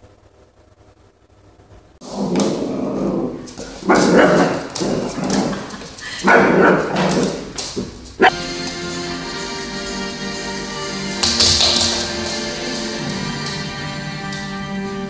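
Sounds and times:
small dog barking: 0:03.8 - 0:04.8, 0:06.2 - 0:07.4
music: 0:08.3 - 0:15.0.

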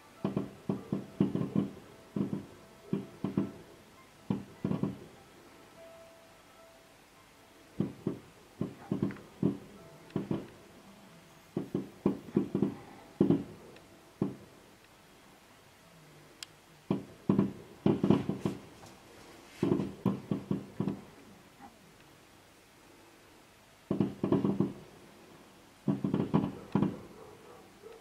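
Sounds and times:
fireworks bangs: 0:00.2 - 0:05.2, 0:07.8 - 0:10.6, 0:11.5 - 0:14.5, 0:16.9 - 0:18.8, 0:19.6 - 0:21.1, 0:23.9 - 0:24.9, 0:25.8 - 0:27.2.

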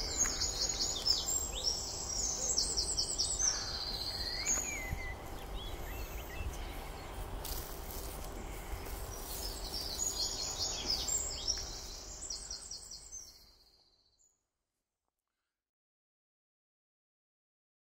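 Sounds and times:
small birds singing: 0:00.0 - 0:14.4
steady low rumble: 0:03.2 - 0:12.7.

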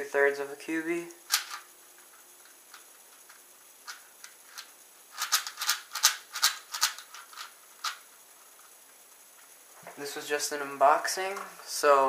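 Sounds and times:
speed cube layers clicking: 0:01.3 - 0:01.7, 0:02.4 - 0:08.1.

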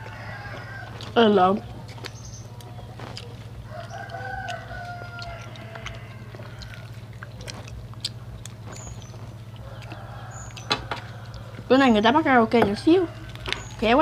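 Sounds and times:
rooster crowing: 0:00.0 - 0:01.1, 0:03.6 - 0:07.1, 0:09.5 - 0:11.7, 0:12.8 - 0:13.9
steady low hum: 0:00.0 - 0:14.0.

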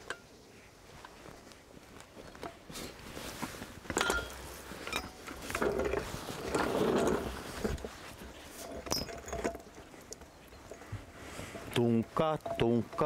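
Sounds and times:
metal clanks and knocks: 0:03.9 - 0:07.8, 0:08.6 - 0:10.9, 0:11.5 - 0:13.0
floor jack wheeled over concrete: 0:03.9 - 0:13.0.

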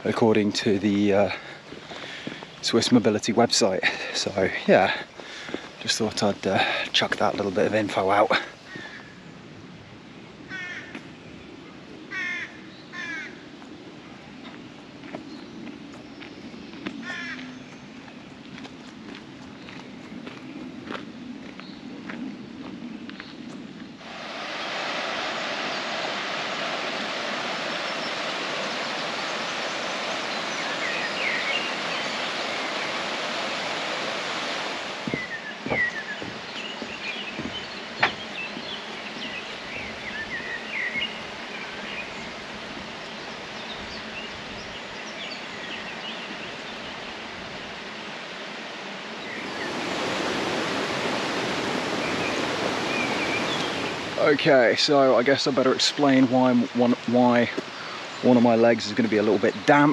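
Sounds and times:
river water rushing: 0:00.0 - 0:02.8, 0:24.0 - 0:59.9
bird chirps: 0:27.8 - 0:33.0, 0:35.0 - 0:42.3, 0:52.0 - 0:54.2
sharp knocks: 0:35.1 - 0:38.3.

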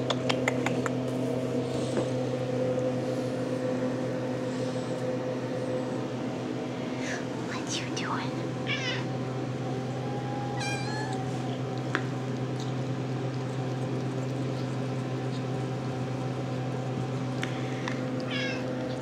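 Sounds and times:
steady low hum: 0:00.0 - 0:19.0
kitten meowing: 0:08.7 - 0:09.1, 0:10.2 - 0:11.3, 0:18.3 - 0:18.6.

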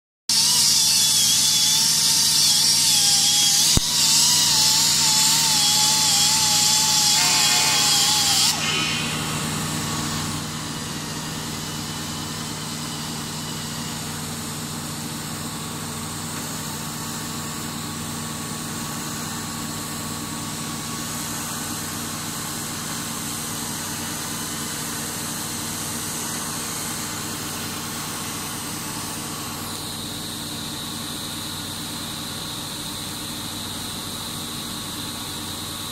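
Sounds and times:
welding machine hum: 0:00.3 - 0:31.6
loud hiss with whine: 0:00.4 - 0:14.9.

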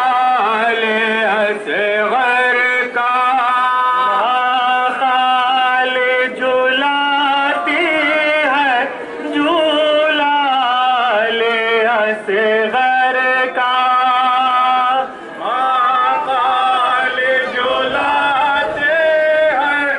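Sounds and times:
man singing a mourning chant: 0:00.0 - 0:19.9.

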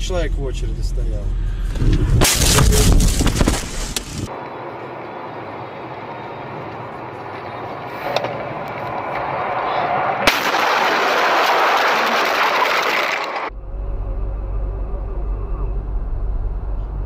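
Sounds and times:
road noise: 0:00.0 - 0:17.0
rushing scraping noise: 0:01.0 - 0:04.3
car crash impact: 0:01.7 - 0:04.3, 0:10.2 - 0:13.5.

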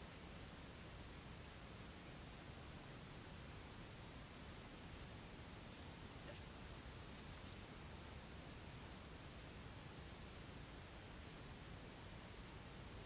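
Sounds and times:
outdoor background hiss: 0:00.0 - 0:13.0
small bird chirping: 0:02.8 - 0:03.4, 0:05.5 - 0:07.0, 0:08.6 - 0:09.2.

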